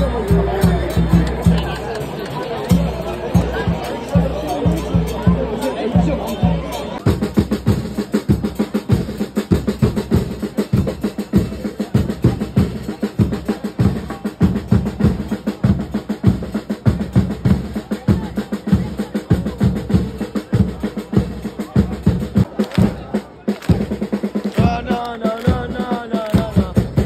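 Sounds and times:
snare drum rolls: 0:07.0 - 0:27.0.

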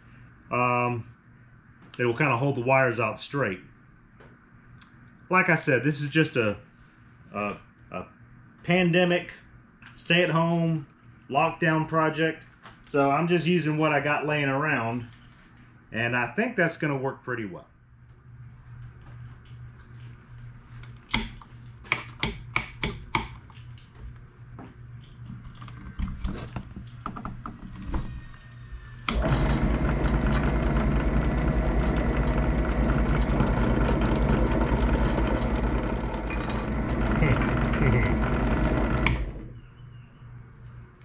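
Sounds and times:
drill press motor running: 0:29.0 - 0:39.6.

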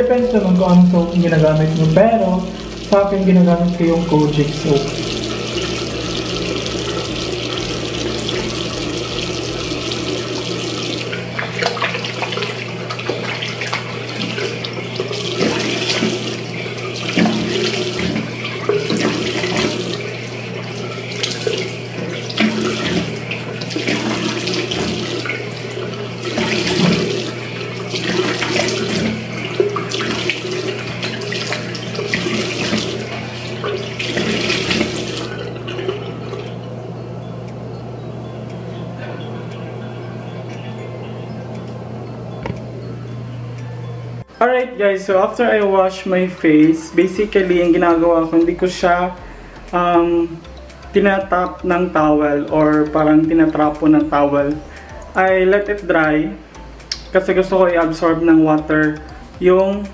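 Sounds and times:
water splashing: 0:00.0 - 0:37.5
tap running into sink: 0:00.2 - 0:36.5, 0:42.3 - 0:42.7.

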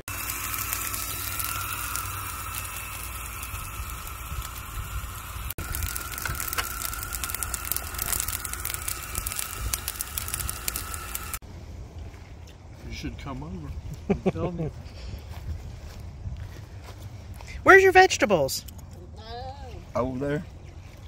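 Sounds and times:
steady high whine: 0:00.0 - 0:13.8
steaks sizzling on a grill: 0:00.1 - 0:11.4.

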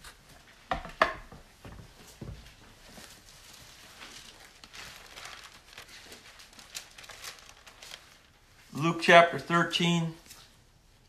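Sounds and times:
thin pages rustling: 0:02.2 - 0:08.8.

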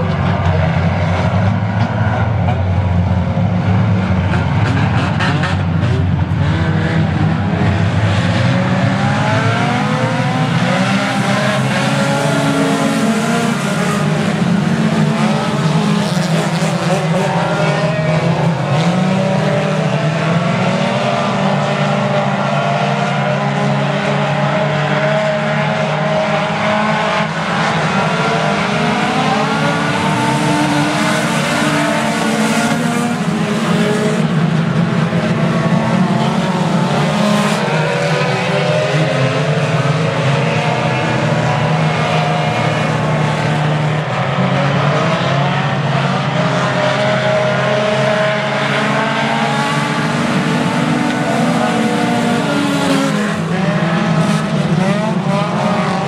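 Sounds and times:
race car engines passing: 0:00.0 - 0:56.0.

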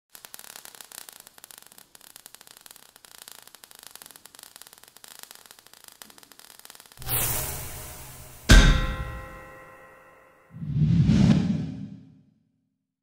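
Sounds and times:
crackling sparks hiss: 0:00.1 - 0:08.6.

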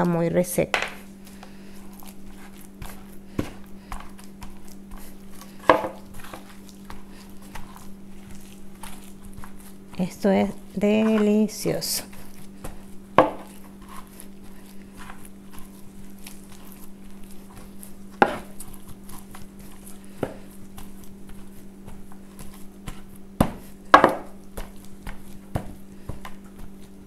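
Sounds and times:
steady low hum: 0:00.0 - 0:27.0
wooden mallet pounding on board: 0:05.7 - 0:06.0, 0:13.2 - 0:13.5, 0:23.4 - 0:24.4.

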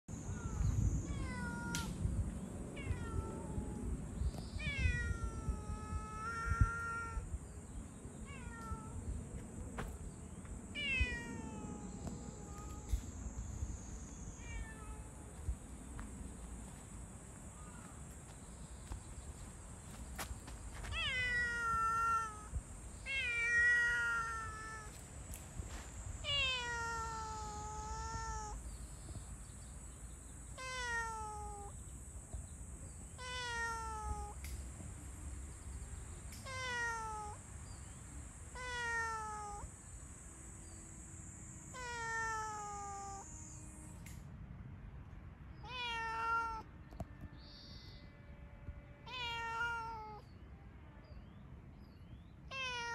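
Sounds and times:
cat meowing: 0:00.3 - 0:01.9, 0:02.8 - 0:03.8, 0:04.6 - 0:07.3, 0:08.2 - 0:09.0, 0:10.8 - 0:13.0, 0:14.4 - 0:15.2, 0:20.9 - 0:24.9, 0:26.2 - 0:28.6, 0:30.6 - 0:31.7, 0:33.2 - 0:34.4, 0:36.4 - 0:37.4, 0:38.6 - 0:39.7, 0:41.7 - 0:43.3, 0:45.6 - 0:46.7, 0:49.0 - 0:50.3, 0:52.5 - 0:52.9.

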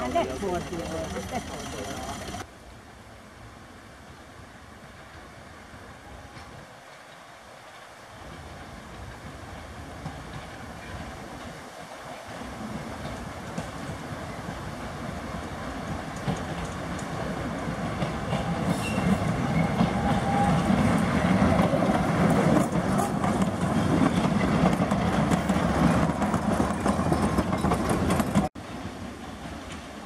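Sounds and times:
diesel locomotive engine: 0:00.0 - 0:02.5, 0:04.3 - 0:30.0
train wheels on rails: 0:00.0 - 0:02.5, 0:06.0 - 0:30.0.

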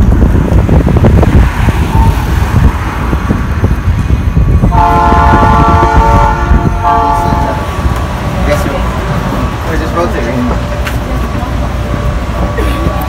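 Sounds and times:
moving train rumble: 0:00.0 - 0:13.0
train horn chord: 0:04.7 - 0:07.7.

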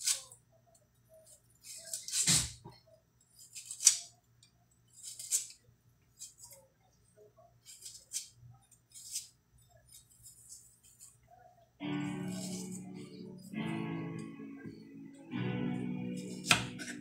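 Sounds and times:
knife slicing onion: 0:00.0 - 0:00.3, 0:03.3 - 0:04.1, 0:04.9 - 0:06.5, 0:07.6 - 0:11.2, 0:12.2 - 0:12.7, 0:16.2 - 0:17.0.

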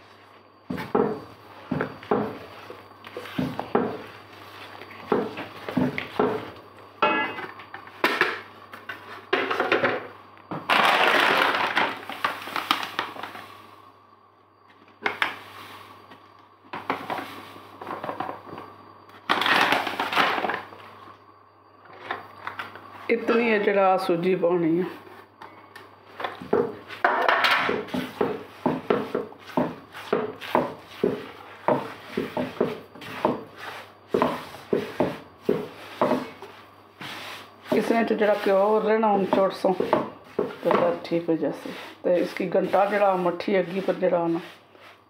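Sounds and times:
spatula scraping a wok: 0:27.7 - 0:45.0.

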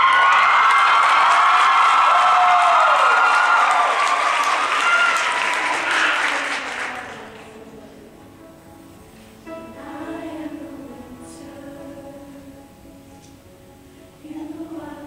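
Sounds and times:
audience applause: 0:00.0 - 0:07.6
girls' choir singing held chords: 0:04.6 - 0:15.0.

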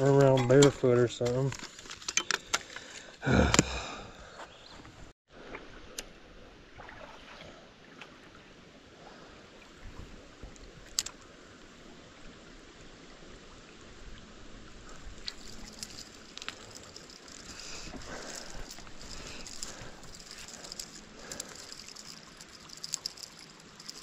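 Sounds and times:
creek water trickling: 0:06.6 - 0:24.0.

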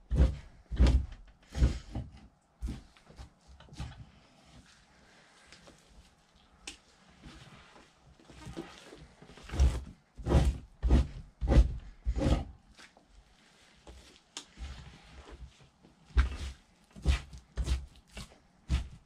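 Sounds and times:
knife scraping hide: 0:08.4 - 0:12.9, 0:16.2 - 0:19.0.

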